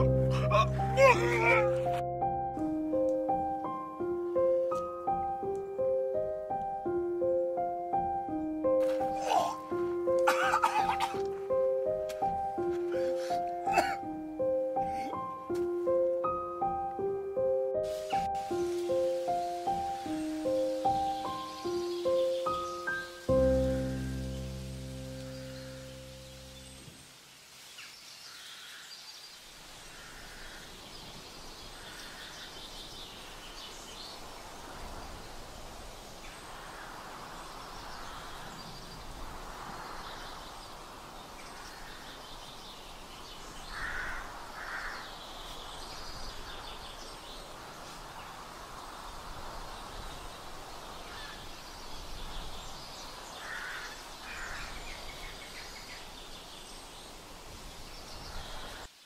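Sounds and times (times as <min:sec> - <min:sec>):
steady hiss: 0:11.1 - 0:59.0
birds calling: 0:18.0 - 0:26.9, 0:36.2 - 0:59.0.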